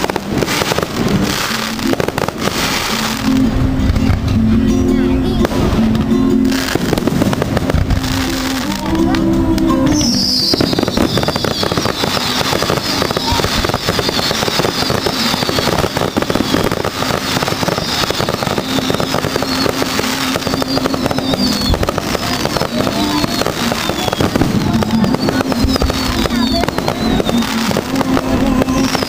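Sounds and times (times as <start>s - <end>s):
fireworks bangs: 0.0s - 29.0s
fireworks crackling and popping: 0.0s - 29.0s
high falling whistles: 10.0s - 16.6s.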